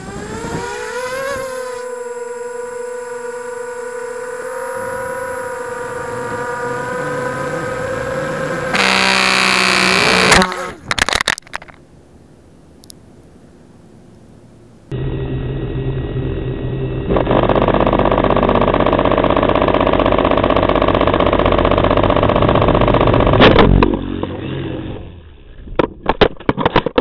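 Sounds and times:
drone motors whining: 0:00.0 - 0:11.0, 0:14.9 - 0:25.6
drone crashing with clattering hits: 0:14.9 - 0:26.2.

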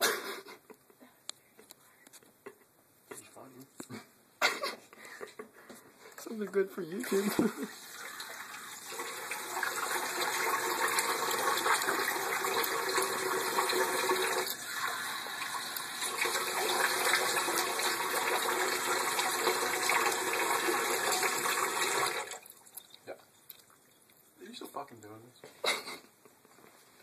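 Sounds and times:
faucet running water into sink: 0:06.9 - 0:22.9.

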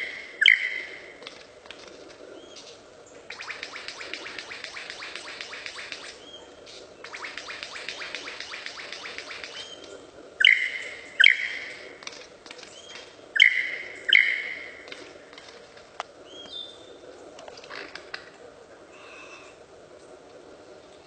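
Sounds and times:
lyrebird singing: 0:00.0 - 0:01.2, 0:02.4 - 0:15.1.

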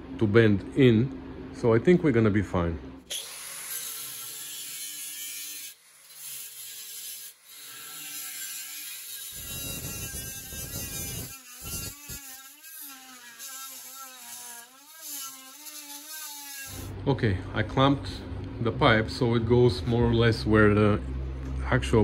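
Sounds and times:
angle grinder cutting metal: 0:03.1 - 0:16.9.

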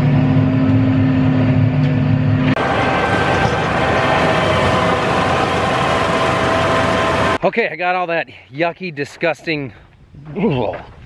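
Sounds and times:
tractor engine running under load: 0:00.0 - 0:07.4
rotary brush cutter whining: 0:02.5 - 0:07.4.

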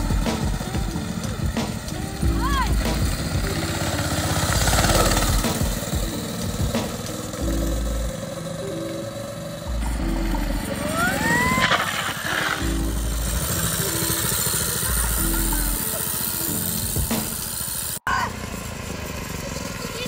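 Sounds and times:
music with steady beat: 0:00.0 - 0:08.2, 0:09.7 - 0:11.2, 0:12.6 - 0:17.5
rising and falling whine: 0:00.0 - 0:18.0
go-kart engine running: 0:00.0 - 0:20.0.

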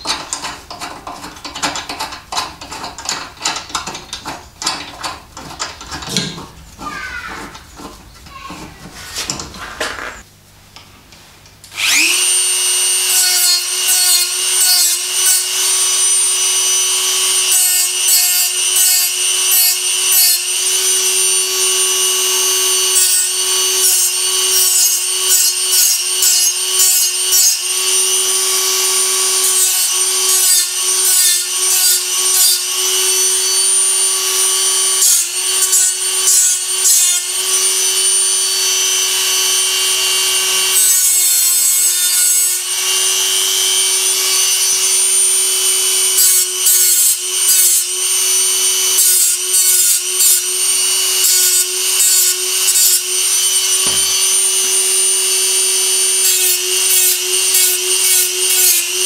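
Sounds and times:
rotary tool whine: 0:11.7 - 0:59.0
abrasive wheel grinding steel: 0:11.8 - 0:59.0.

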